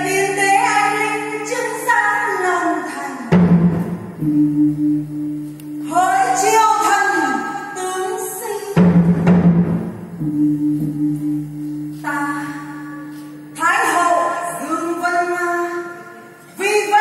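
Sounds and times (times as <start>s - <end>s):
deep drum stroke: 3.3s - 5.5s, 8.8s - 12.1s
low held tones: 3.8s - 7.4s, 10.0s - 14.6s.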